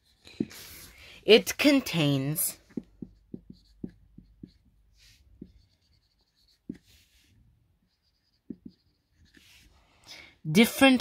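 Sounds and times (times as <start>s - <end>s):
marker scratching on whiteboard: 0.0s - 9.8s
marker tapping on whiteboard: 2.6s - 7.0s, 8.2s - 9.0s.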